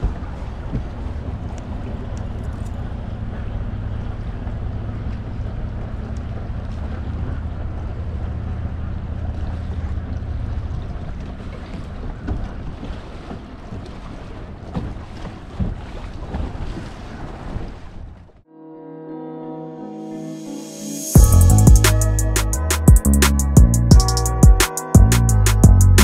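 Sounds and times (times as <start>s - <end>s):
outboard motor humming: 0.0s - 15.9s
water noise: 0.0s - 18.5s.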